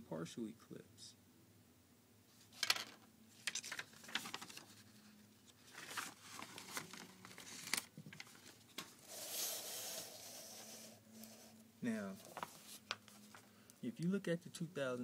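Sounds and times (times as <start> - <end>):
paper rustling: 2.5 - 11.5, 12.1 - 13.5.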